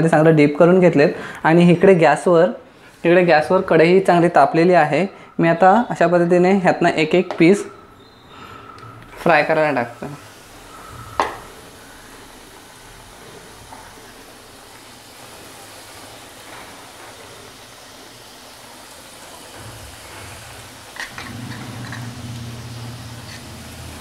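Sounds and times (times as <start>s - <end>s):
chicken deep-frying in oil: 9.3s - 24.0s.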